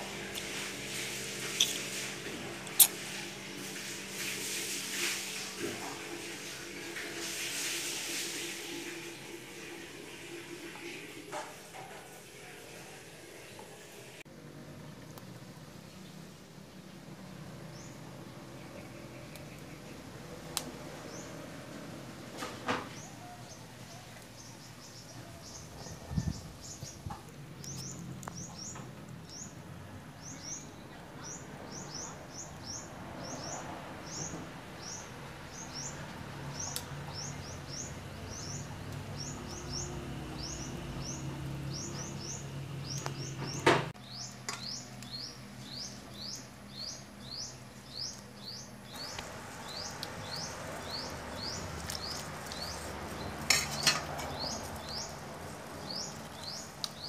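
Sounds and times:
utensil clattering against wok: 53.4 - 54.7.

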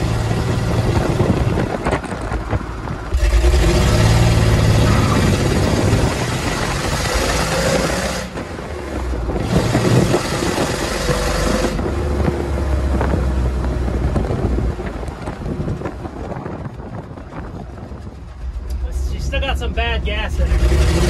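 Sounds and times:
truck engine running: 0.0 - 21.0
wind and road noise: 0.0 - 21.0.

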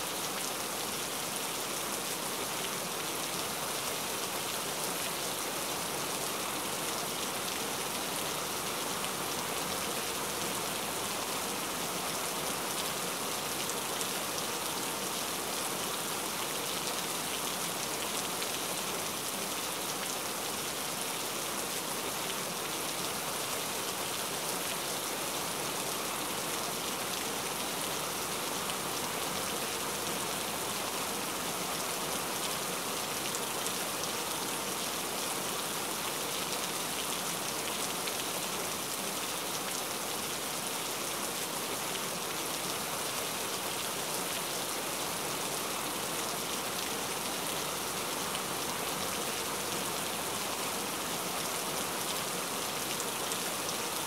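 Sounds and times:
steady rainfall: 0.0 - 54.0.

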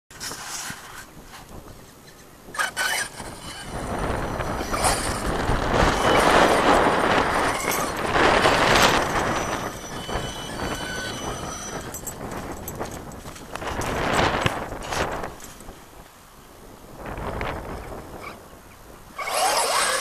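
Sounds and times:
tyres scrabbling on dirt: 0.1 - 15.8, 19.2 - 20.0
electric motor high whine: 2.5 - 13.0, 19.1 - 20.0.

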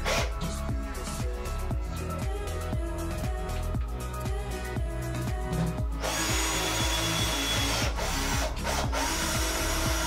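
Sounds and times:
background music with steady beat: 0.0 - 10.0
cordless drill drilling into wood: 6.0 - 10.0.

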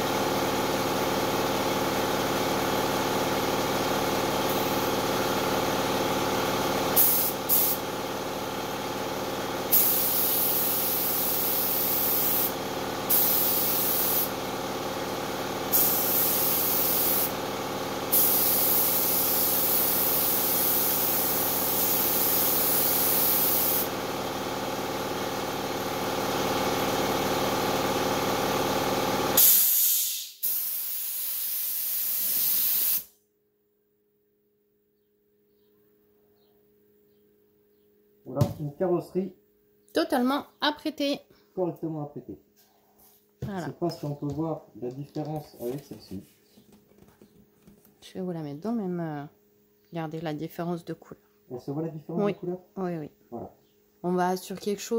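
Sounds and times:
air compressor humming: 0.0 - 33.2
spray gun hissing: 6.9 - 7.9, 9.7 - 14.4, 15.7 - 17.4, 18.1 - 23.9, 29.4 - 33.1.

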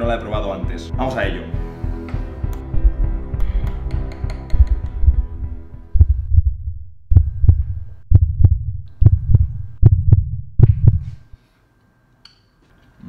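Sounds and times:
heartbeat thumps: 2.6 - 11.4.

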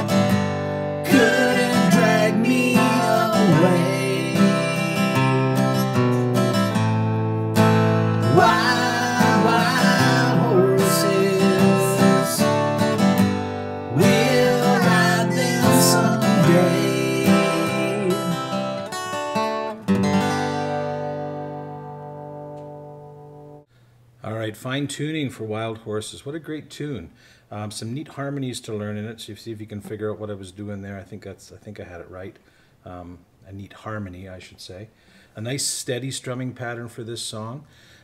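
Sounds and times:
acoustic guitar strumming: 0.0 - 23.6
man singing: 1.0 - 6.0, 8.2 - 12.6, 13.9 - 18.8.

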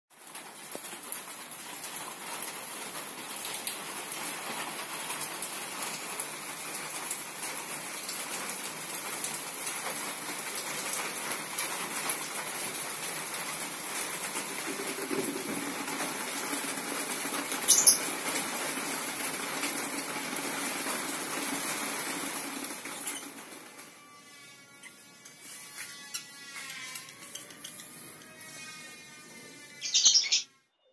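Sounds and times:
birds chirping: 17.7 - 18.1, 29.8 - 30.5.

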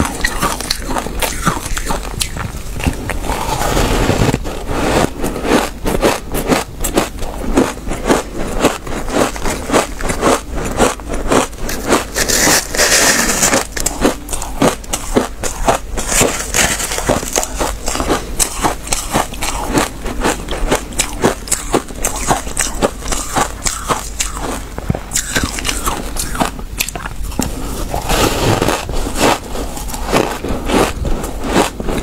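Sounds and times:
chewing crunchy shaved ice: 0.0 - 32.0
fingers scraping ice in tub: 11.5 - 24.3.

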